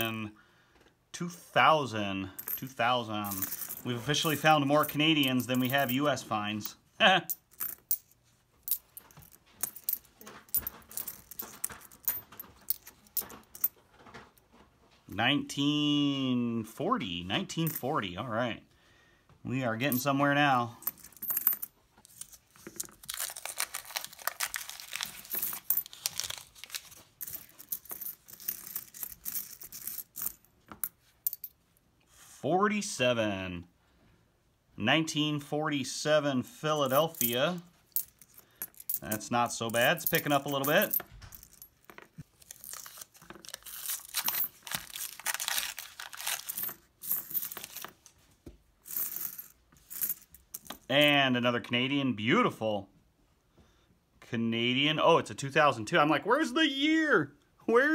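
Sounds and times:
coins clicking together: 0:02.4 - 0:06.1, 0:20.9 - 0:30.5, 0:36.9 - 0:41.7, 0:42.6 - 0:47.9
paper wrapper tearing and crumpling: 0:23.0 - 0:27.1, 0:42.3 - 0:46.5.

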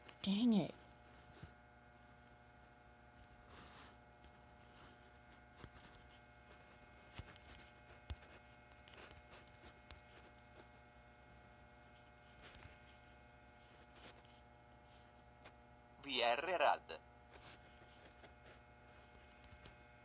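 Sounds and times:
faint electrical hum: 0:00.0 - 0:20.0
fingertips tapping touchscreen: 0:05.6 - 0:10.4, 0:17.4 - 0:19.8.

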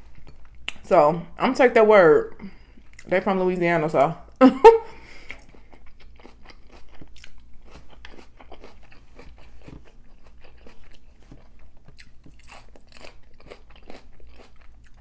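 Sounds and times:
person chewing and crunching food: 0:00.0 - 0:00.9, 0:02.5 - 0:03.2, 0:05.0 - 0:15.0.

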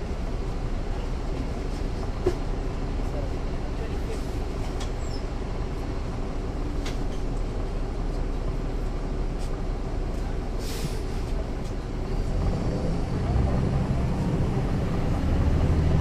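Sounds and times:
bus diesel engine running: 0:00.0 - 0:16.0
short air hiss: 0:10.6 - 0:11.2.

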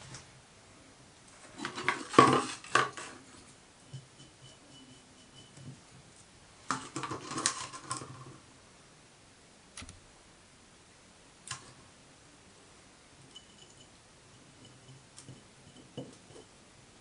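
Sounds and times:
clatter of small items: 0:01.5 - 0:03.2, 0:06.7 - 0:08.3
sharp clicks: 0:09.8 - 0:10.0.

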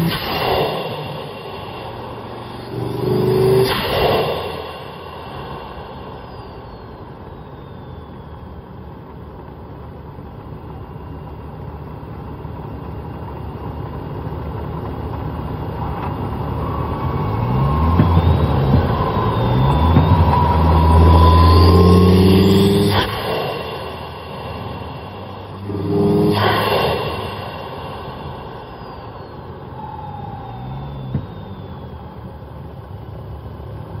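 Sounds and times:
car engine revving: 0:00.0 - 0:08.4, 0:14.4 - 0:34.0
turbo whistle: 0:00.0 - 0:09.1, 0:16.5 - 0:32.7.

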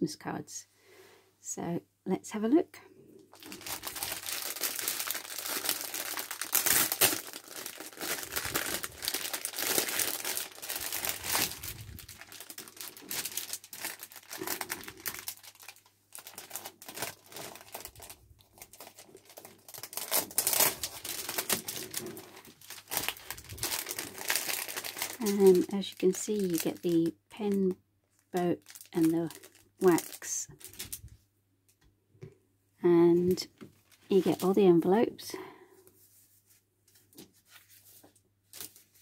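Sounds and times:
plastic packaging crinkling: 0:03.3 - 0:27.5, 0:28.1 - 0:31.2, 0:33.6 - 0:34.6, 0:37.5 - 0:39.0.

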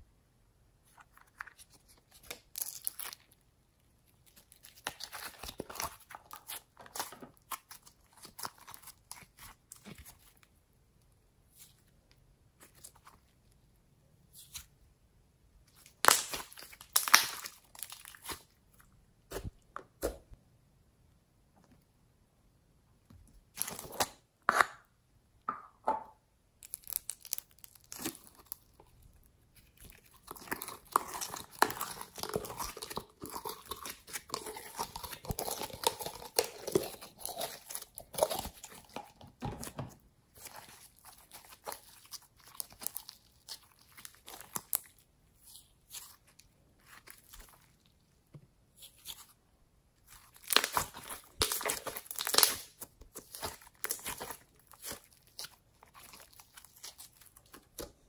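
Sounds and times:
slime clicking and popping: 0:50.4 - 0:56.3.

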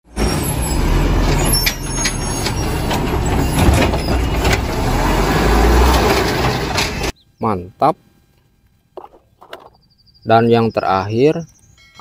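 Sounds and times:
garbage truck engine rumble: 0:00.0 - 0:07.2
mechanical arm knocks and clanks: 0:01.7 - 0:04.7.

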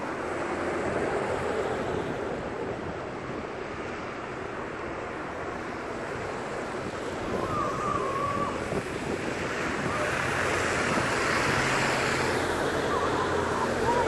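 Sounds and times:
bus engine and tyre noise: 0:00.0 - 0:14.0
high squeal: 0:07.3 - 0:08.9, 0:12.7 - 0:14.0.

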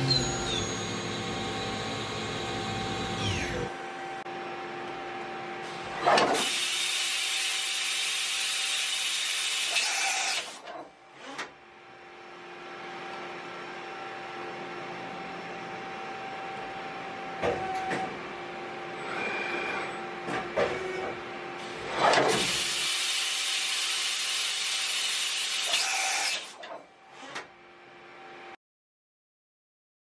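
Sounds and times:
machine hum: 0:00.0 - 0:06.1.

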